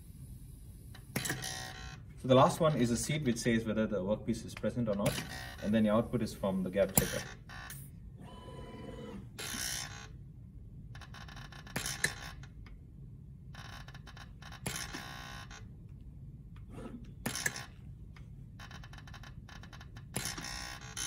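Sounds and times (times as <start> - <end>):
actuator mechanical noise: 0.9 - 10.2.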